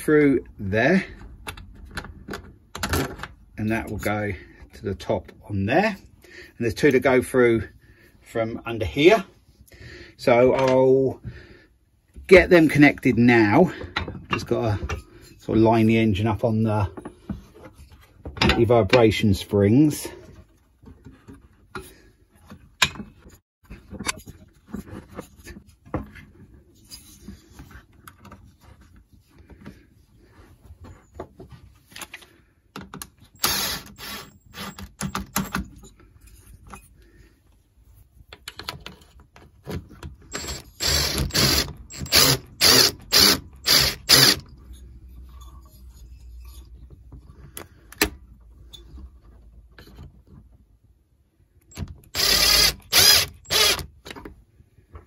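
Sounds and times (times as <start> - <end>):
power driver turning bolts: 40.3 - 44.5, 51.7 - 54.2.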